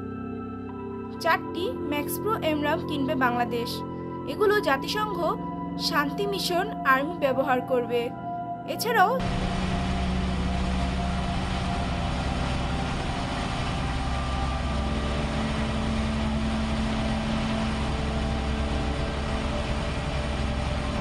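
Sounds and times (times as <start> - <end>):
heavy diesel engine running: 9.2 - 21.0.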